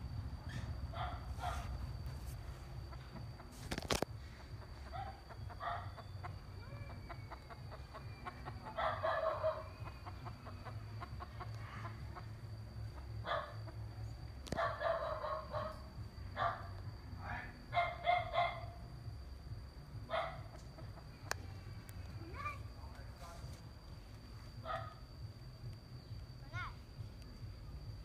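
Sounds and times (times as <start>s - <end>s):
rooster clucking and crowing: 4.2s - 16.5s.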